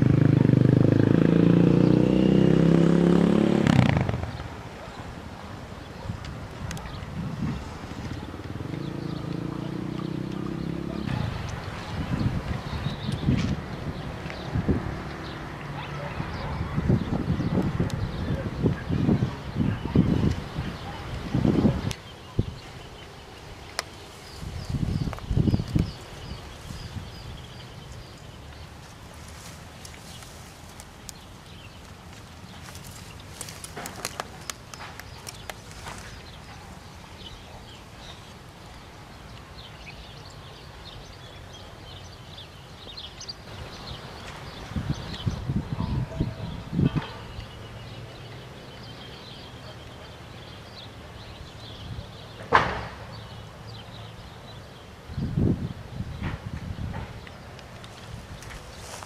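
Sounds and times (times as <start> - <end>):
sharp crack: 3.3 - 4.6, 52.4 - 53.1.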